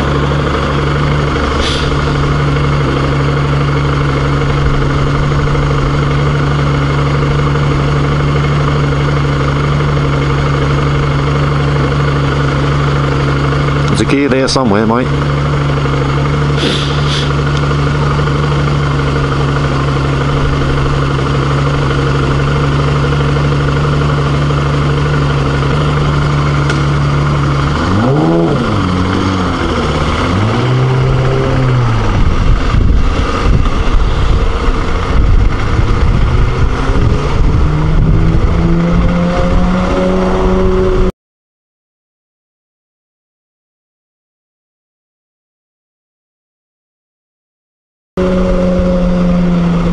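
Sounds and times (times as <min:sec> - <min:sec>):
motorcycle engine idling and revving: 0:00.0 - 0:41.1, 0:48.2 - 0:49.9
wind buffeting microphone: 0:28.6 - 0:41.1.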